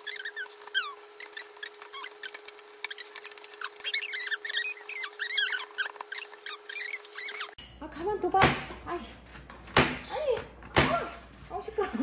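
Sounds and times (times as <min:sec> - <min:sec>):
parrot chirps and whistles: 0:00.0 - 0:07.6.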